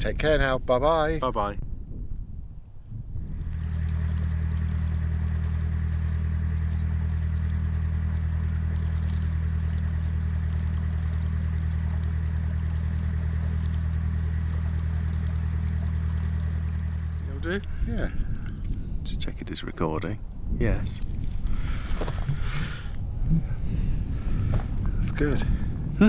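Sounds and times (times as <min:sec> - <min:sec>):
boat engine throbbing: 0:02.9 - 0:26.0
small bird chirping: 0:05.7 - 0:07.0, 0:09.0 - 0:10.2, 0:13.8 - 0:15.4.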